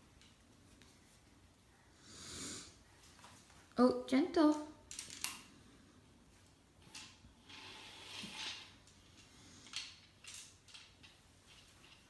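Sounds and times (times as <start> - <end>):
wooden abacus beads sliding: 6.8 - 12.0.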